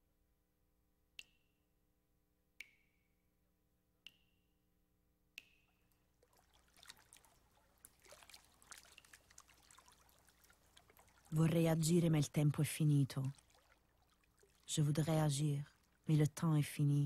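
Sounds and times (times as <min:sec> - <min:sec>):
water drops plinking: 0:05.4 - 0:16.3
crackling trickle of water: 0:05.8 - 0:16.4.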